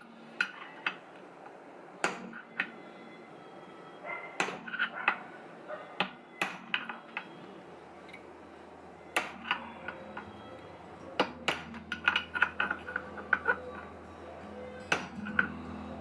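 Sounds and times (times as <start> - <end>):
hammer tapping metal punch: 2.0 - 2.8, 4.4 - 5.2, 6.0 - 7.3, 9.1 - 10.4, 11.2 - 13.9, 14.8 - 15.6.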